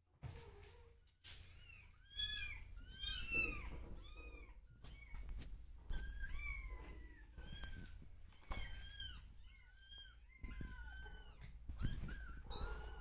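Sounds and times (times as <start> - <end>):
cat meowing: 8.5 - 13.0.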